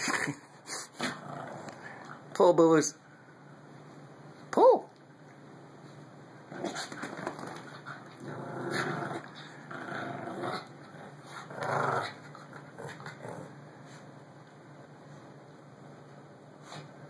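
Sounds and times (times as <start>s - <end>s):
small dogs growling in play: 0.8s - 2.3s, 6.4s - 14.0s.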